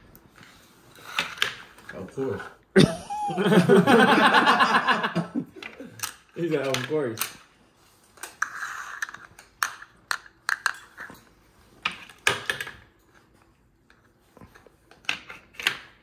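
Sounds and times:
game discs clicking and clacking: 5.6 - 7.4.

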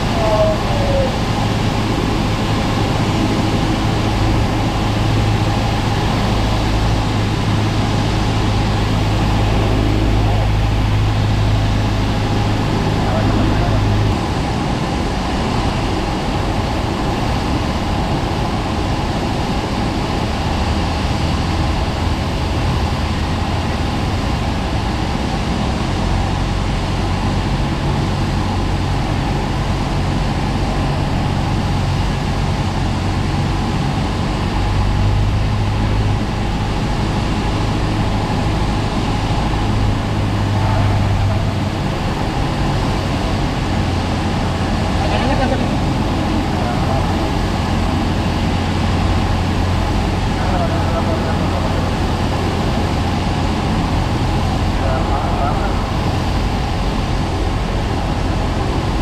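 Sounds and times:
propeller plane engine droning: 0.0 - 59.0.

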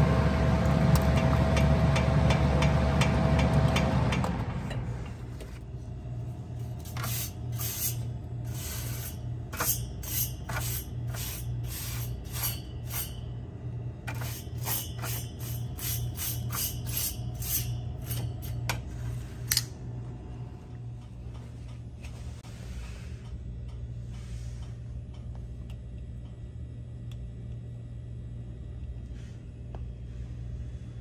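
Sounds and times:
refrigeration unit humming: 0.0 - 31.0
scraping and rubbing: 6.7 - 13.2, 14.1 - 19.4.

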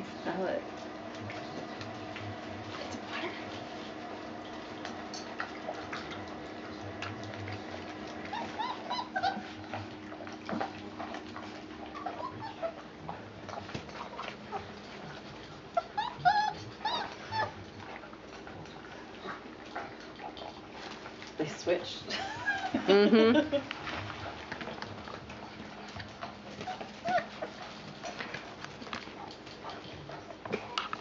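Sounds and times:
paws scuffling on pads: 0.2 - 22.5, 23.6 - 31.0
puppies whimpering and yipping: 7.6 - 13.2, 13.9 - 17.8, 25.4 - 27.8.

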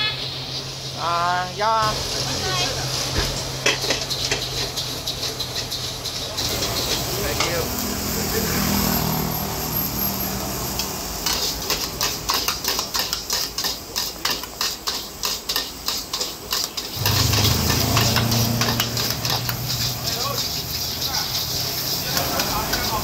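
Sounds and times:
metal utensils clanking against a wok: 1.8 - 23.0
vehicle engine humming: 1.9 - 13.2, 17.0 - 23.0.

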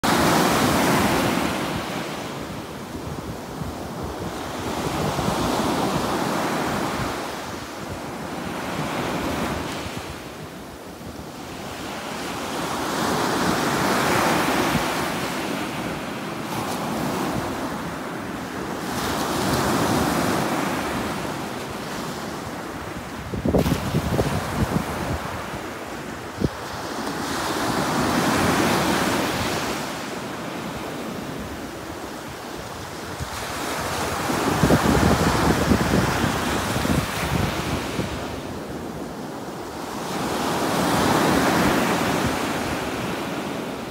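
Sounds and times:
ocean surf breaking on beach: 0.0 - 43.9
wind buffeting microphone: 22.9 - 26.8, 32.8 - 38.6.

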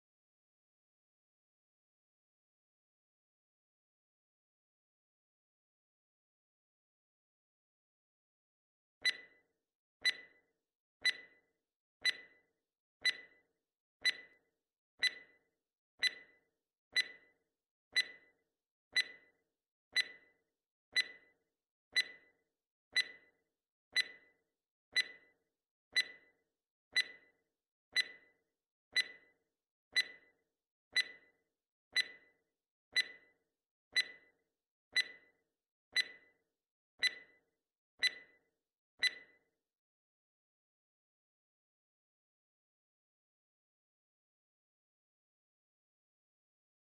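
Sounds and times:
timer ticking clicks: 9.0 - 9.4, 10.0 - 10.4, 11.0 - 11.4, 12.0 - 12.4, 13.0 - 13.4, 14.0 - 14.4, 15.0 - 15.4, 16.0 - 16.4, 17.0 - 17.3, 18.0 - 18.3, 19.0 - 19.3, 20.0 - 20.3, 21.0 - 21.3, 22.0 - 22.3, 23.0 - 23.3, 24.0 - 24.3, 25.0 - 25.3, 26.0 - 26.3, 27.0 - 27.3, 28.0 - 28.3, 29.0 - 29.3, 30.0 - 30.3, 31.0 - 31.3, 32.0 - 32.3, 33.0 - 33.3, 34.0 - 34.3, 35.0 - 35.3, 36.0 - 36.3, 37.0 - 37.4, 38.0 - 38.4, 39.0 - 39.3.

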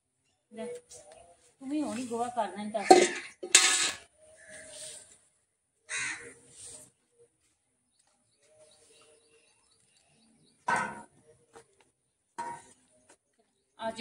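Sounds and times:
crows cawing: 5.9 - 6.5.

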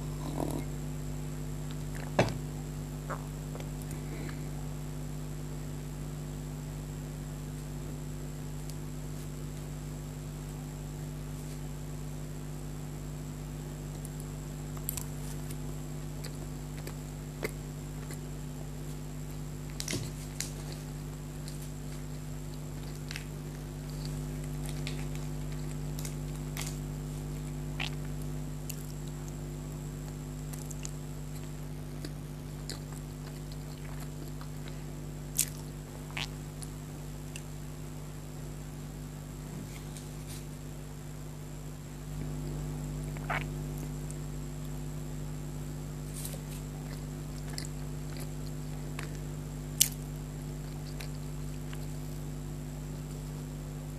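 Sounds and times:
electrical hum: 0.0 - 53.9
soft squishy chewing: 13.9 - 19.0, 19.7 - 37.5, 46.0 - 53.5.

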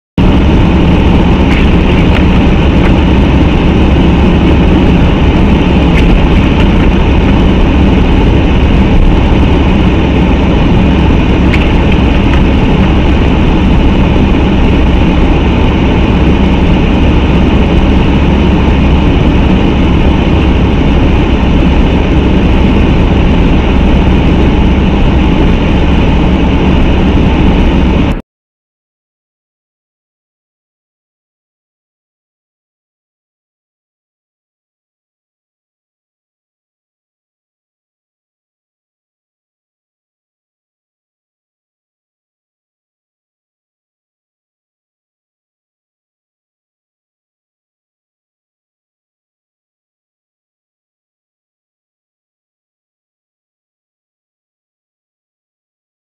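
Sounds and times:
car road and engine rumble: 0.2 - 28.2.

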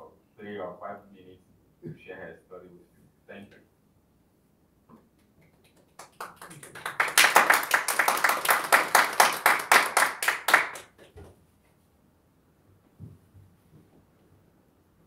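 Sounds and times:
hands clapping in applause: 5.4 - 11.2.

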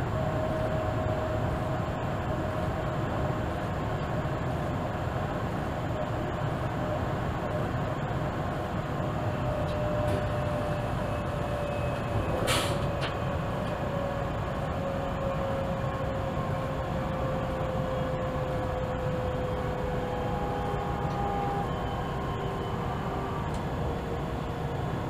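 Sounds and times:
train rumble: 0.0 - 25.0
brief hiss: 12.4 - 12.9.

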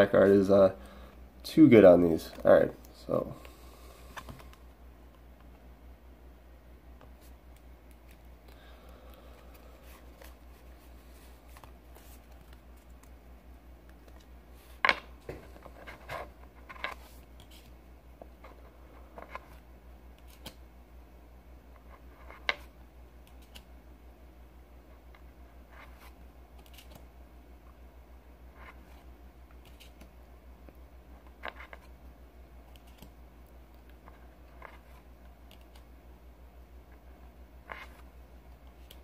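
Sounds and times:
low steady hum: 0.0 - 39.0
cards sliding and snapping: 9.5 - 13.2, 20.2 - 20.6, 23.3 - 23.7, 26.6 - 27.0.

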